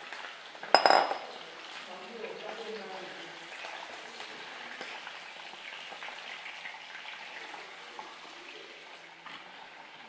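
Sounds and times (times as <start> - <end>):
chicken sizzling in hot oil: 0.0 - 10.0.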